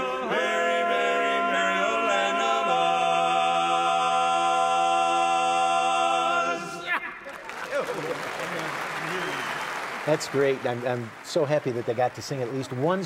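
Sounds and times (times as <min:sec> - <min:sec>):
men singing in close harmony: 0:00.0 - 0:06.8.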